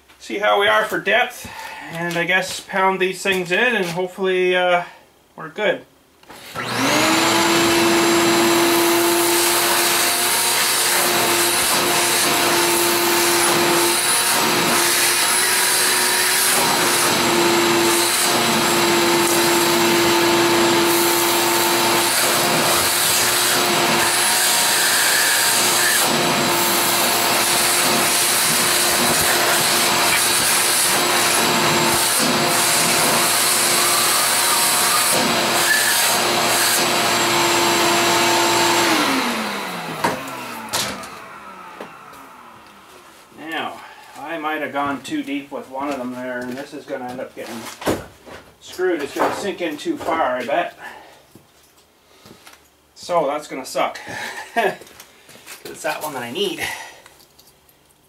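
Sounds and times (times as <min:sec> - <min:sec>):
vacuum cleaner running: 0:06.3 - 0:43.3.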